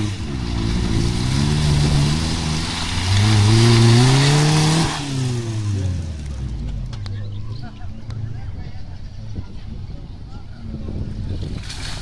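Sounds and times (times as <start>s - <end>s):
tyres churning through mud: 0.0s - 7.7s, 11.3s - 12.0s
car engine revving: 0.0s - 7.8s.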